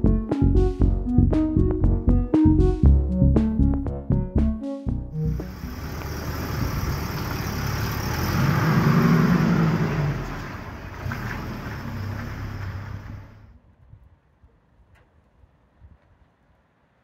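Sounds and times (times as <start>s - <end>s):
car engine driving past: 5.2s - 13.5s.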